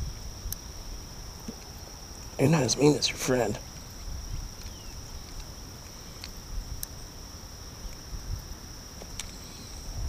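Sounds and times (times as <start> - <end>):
insects buzzing: 0.0 - 10.0
faint clicks: 9.0 - 9.4.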